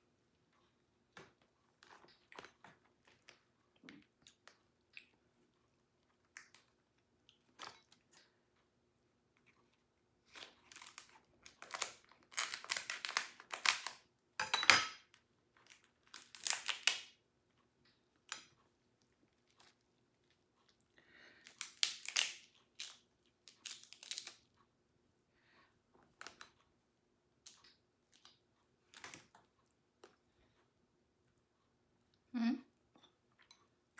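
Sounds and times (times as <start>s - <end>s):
shell cracking and crunching: 10.3s - 14.0s, 15.6s - 17.2s, 21.4s - 24.5s.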